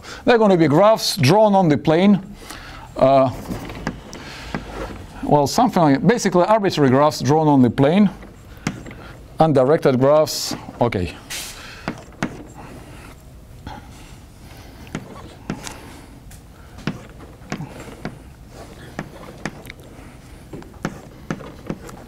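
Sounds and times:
chalk tapping on blackboard: 16.8s - 18.2s, 20.5s - 22.0s.

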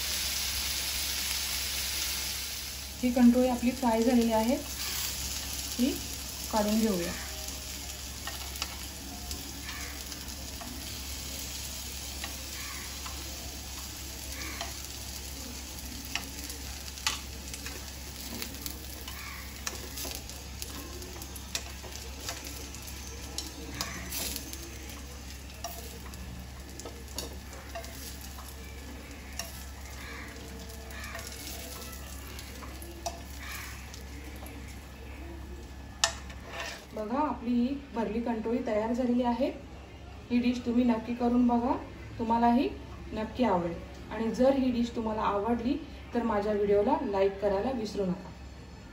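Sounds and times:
food sizzling in oil: 0.0s - 37.4s
tongs clicking on pan: 8.2s - 8.9s, 12.0s - 15.2s, 15.8s - 34.8s, 36.0s - 36.9s.

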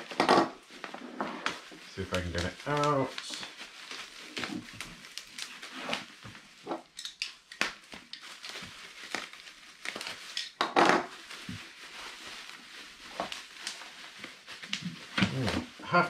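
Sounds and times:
bubble wrap crinkling: 0.0s - 16.0s.

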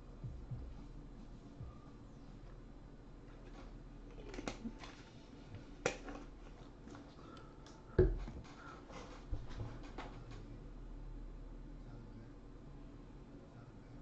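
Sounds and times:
dull knock: 8.0s - 8.3s.

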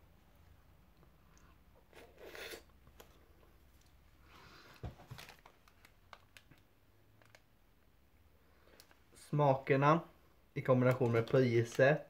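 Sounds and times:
mouth noises eating ice lolly: 1.3s - 3.1s.

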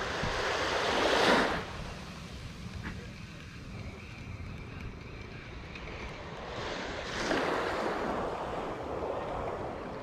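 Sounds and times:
small wave breaking on sand: 0.0s - 1.8s, 6.5s - 9.3s
wind rumble on microphone: 0.0s - 10.0s.

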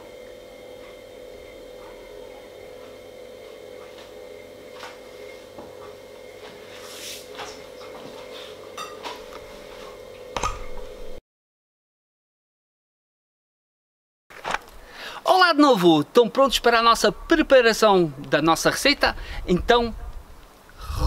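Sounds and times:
steady hum: 20.6s - 21.0s.

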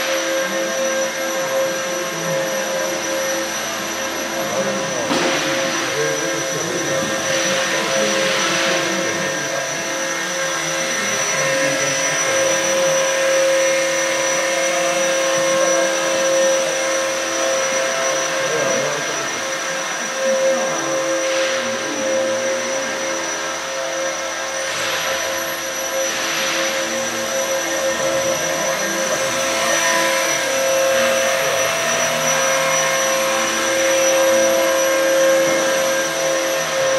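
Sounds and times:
model helicopter motor whine: 0.0s - 36.9s.

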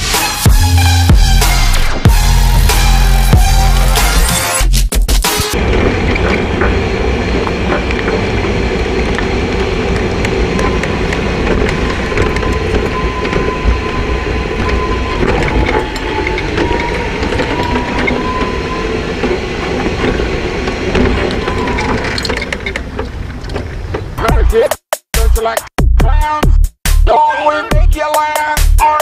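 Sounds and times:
small wheels rolling over pavement: 5.6s - 24.2s.

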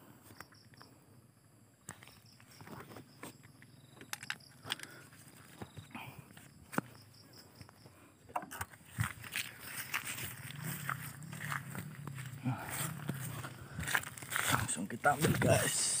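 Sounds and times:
footsteps through dry grass: 8.7s - 15.7s.

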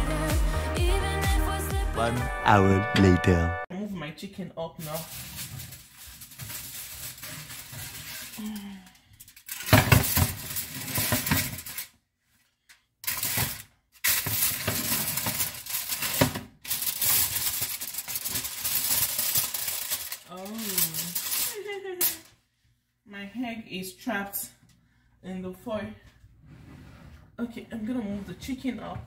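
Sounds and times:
aluminium foil crinkling: 4.8s - 11.9s, 13.0s - 22.3s.

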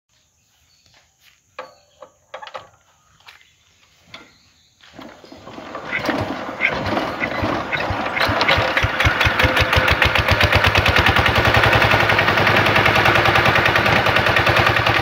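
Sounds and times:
diesel engine hand-cranked whirring: 5.0s - 15.0s.

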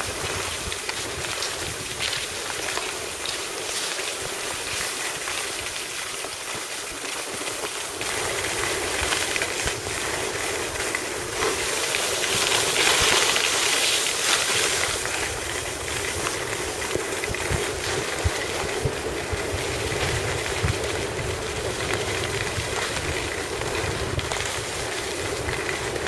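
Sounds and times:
wind on microphone: 0.0s - 2.7s, 14.4s - 26.0s
skis sliding over snow: 0.0s - 26.0s.

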